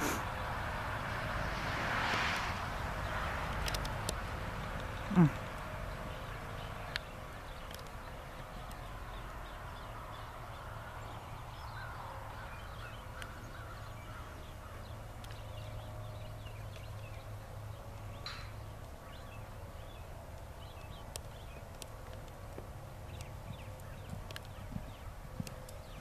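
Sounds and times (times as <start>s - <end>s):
birds chirping: 0.0s - 1.3s, 2.6s - 26.0s
horse hoofbeats on sand: 23.1s - 26.0s.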